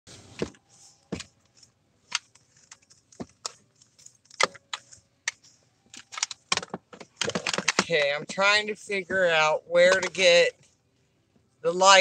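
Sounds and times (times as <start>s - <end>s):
objects clicking and tapping: 0.4s - 8.4s.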